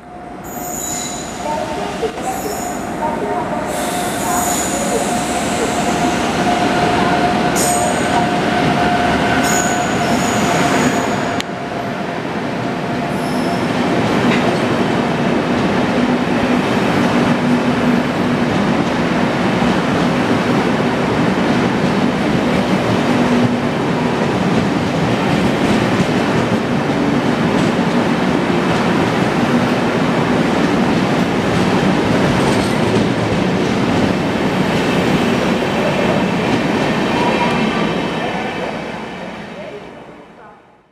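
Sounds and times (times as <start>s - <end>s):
locomotive whine: 0.0s - 13.7s
train wheels rumbling on rail: 0.0s - 39.5s.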